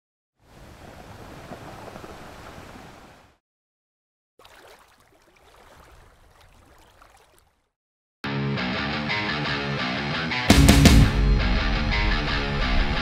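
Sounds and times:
trickling water-like rush: 0.5 - 3.2, 4.4 - 7.7
loud rock music with guitar: 8.3 - 13.0.

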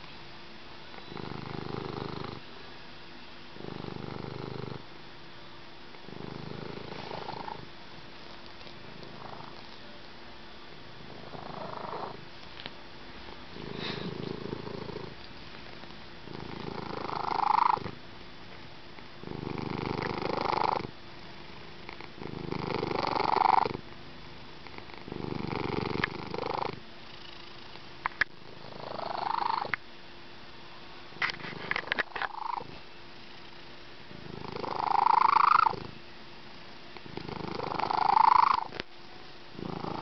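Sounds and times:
slow rhythmic breathing: 13.5 - 14.7.

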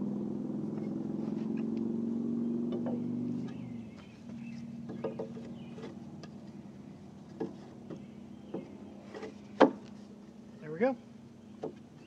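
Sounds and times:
steady motor hum: 0.0 - 12.0
wooden knocks and clicks: 2.7 - 3.6, 4.3 - 6.4, 7.2 - 9.9, 11.6 - 11.9.

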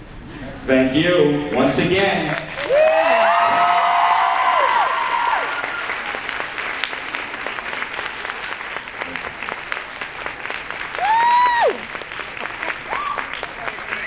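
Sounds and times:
audience clapping: 1.9 - 14.0
high cheers: 2.6 - 6.2, 10.9 - 12.0, 12.6 - 14.0.

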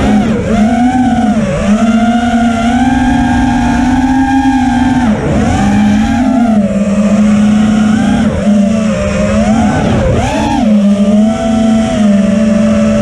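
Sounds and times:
quadcopter motors whining: 0.0 - 13.0.

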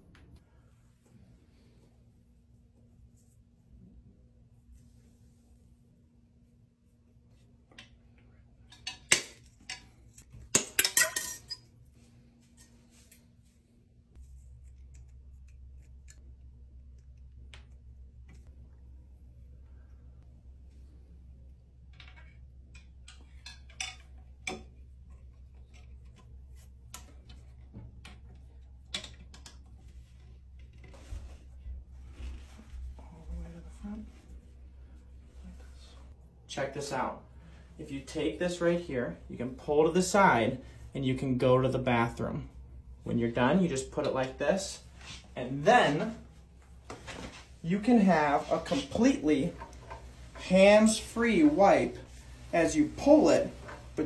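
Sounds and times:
steady low hum: 0.0 - 43.7
pliers clinking on wire hanger: 8.7 - 11.7.

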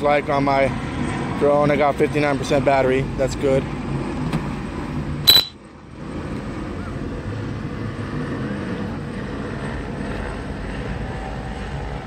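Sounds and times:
vehicle engines rumbling: 0.0 - 12.0
sharp click with high tone: 5.3 - 5.6.

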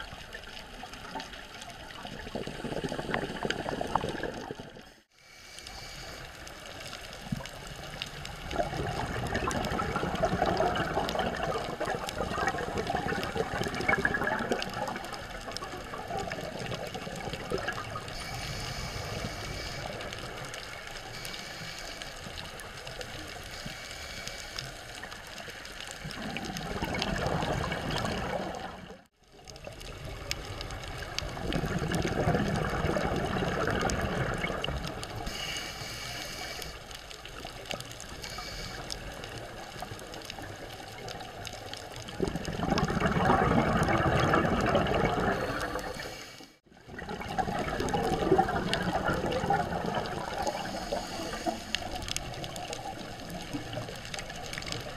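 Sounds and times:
underwater exhaled bubbles: 0.0 - 54.9
regulator hiss: 5.1 - 7.8, 18.1 - 25.1, 35.2 - 37.2, 38.1 - 39.6, 50.5 - 52.4.

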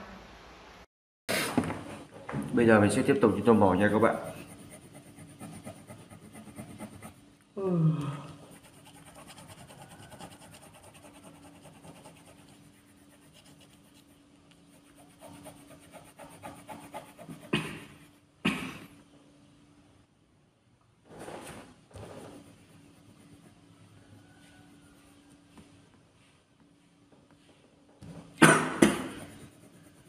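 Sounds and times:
pencil scratching on paper: 3.2 - 7.2, 8.5 - 18.1, 22.0 - 23.6, 29.0 - 30.0.

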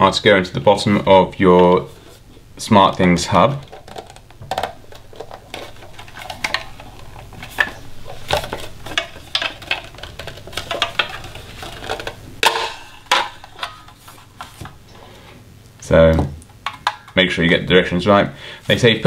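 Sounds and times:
plastic casing clicks and rubbing: 2.9 - 14.8.

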